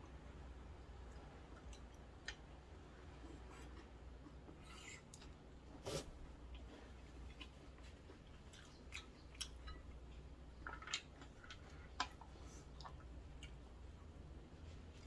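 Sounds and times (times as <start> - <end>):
soft chewing: 0.0 - 15.0.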